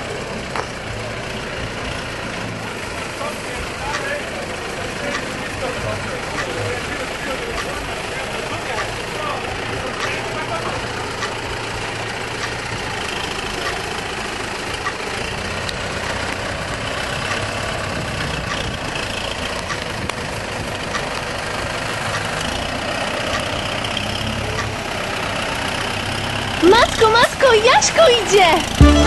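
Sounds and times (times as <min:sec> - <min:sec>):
tractor diesel engine running: 0:00.0 - 0:29.0.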